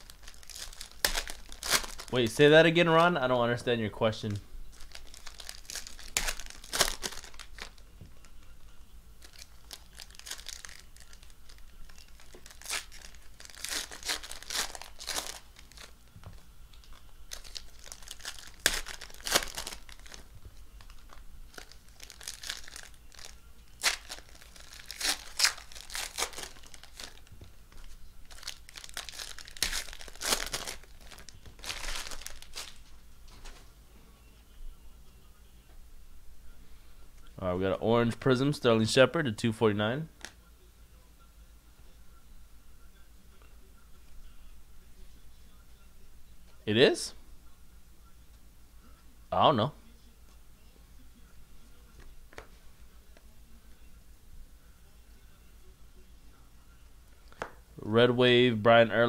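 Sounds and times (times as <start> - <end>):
foil wrappers tearing and crinkling: 0.0 - 3.1, 4.7 - 7.8, 9.2 - 16.0, 16.8 - 32.9.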